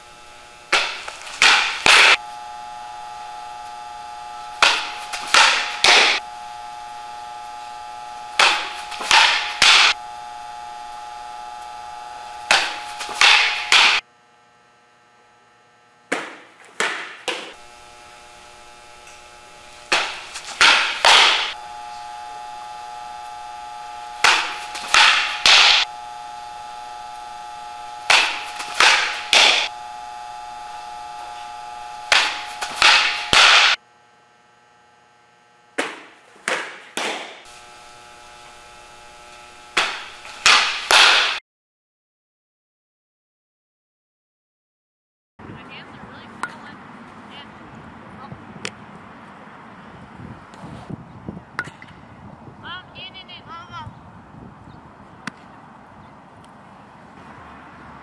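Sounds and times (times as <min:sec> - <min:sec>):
electrical hum: 0:00.0 - 0:41.4, 0:45.4 - 0:58.0
ball popping into mitt: 0:35.8 - 0:37.4.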